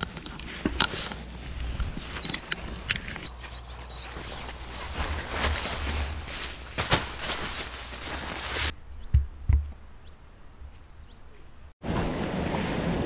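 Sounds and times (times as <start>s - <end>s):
bird chirping: 2.0s - 5.0s, 8.7s - 11.7s
nylon fabric rustling: 3.3s - 8.8s
dull low thumps: 8.8s - 11.1s.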